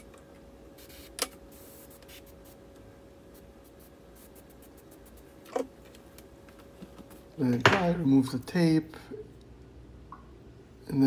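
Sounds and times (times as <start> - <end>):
faint steady hum: 0.0 - 11.0
airbrush spraying: 0.8 - 2.6, 3.3 - 5.3.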